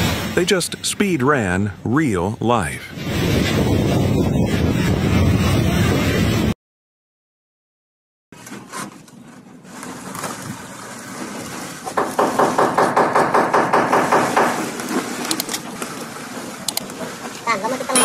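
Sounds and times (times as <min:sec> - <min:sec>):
rapid knocking on wood: 0:12.0 - 0:14.7.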